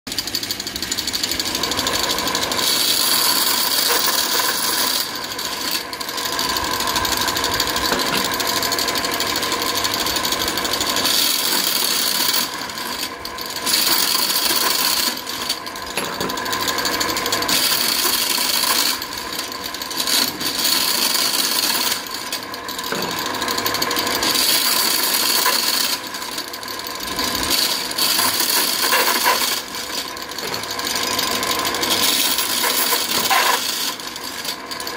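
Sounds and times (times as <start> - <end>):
machine buzz: 0.1 - 34.9
metal nuts rattling and clinking: 10.8 - 34.9.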